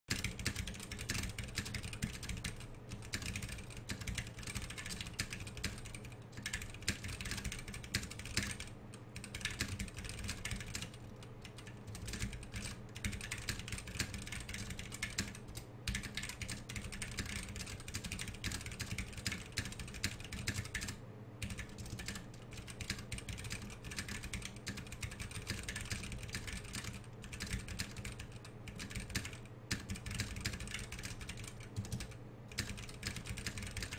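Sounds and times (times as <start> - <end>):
fast mechanical keyboard typing: 0.1 - 33.9.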